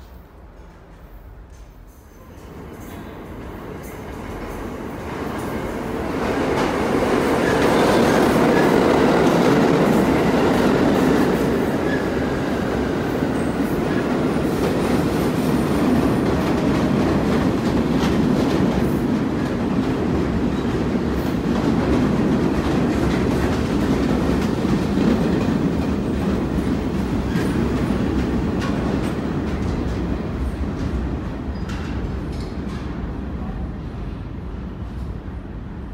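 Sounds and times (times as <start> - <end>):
rail-joint clatter: 0.0 - 3.2, 26.9 - 33.1
subway train rumbling past: 0.0 - 35.9.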